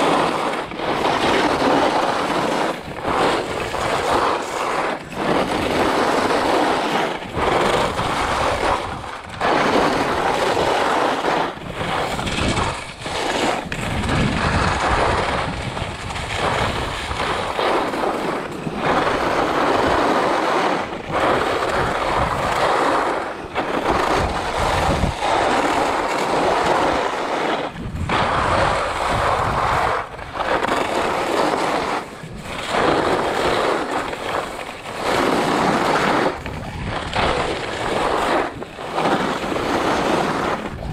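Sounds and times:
skis scraping over snow: 0:00.0 - 0:40.9.

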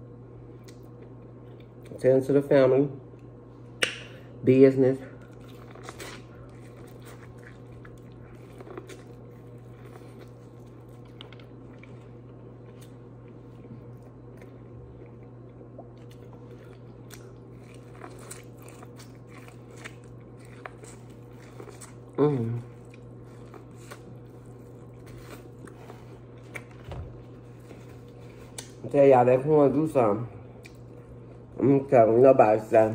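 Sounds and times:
steady low hum: 0:00.0 - 0:32.9
person chewing corn on the cob: 0:05.2 - 0:28.8.

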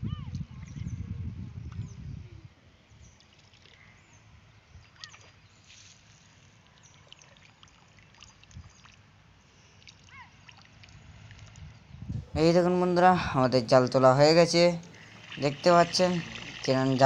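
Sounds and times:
water trickling and splashing: 0:03.0 - 0:11.9, 0:13.9 - 0:17.0.

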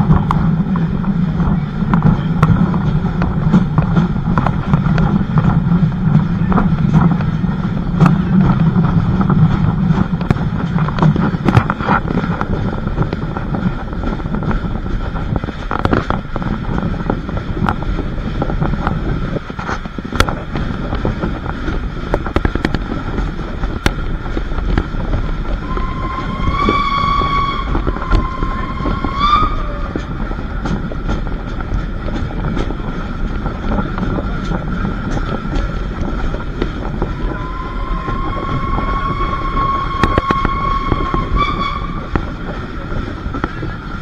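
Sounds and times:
train rumbling: 0:00.0 - 0:44.0
train whistle: 0:25.5 - 0:30.1, 0:37.2 - 0:42.4.

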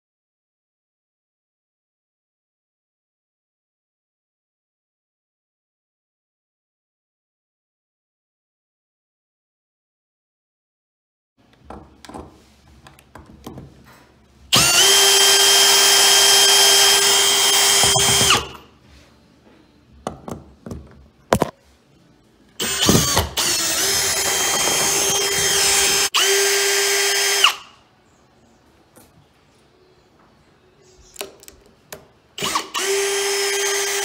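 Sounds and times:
power drill motor whine: 0:14.5 - 0:18.6, 0:22.6 - 0:27.8, 0:32.4 - 0:34.0.

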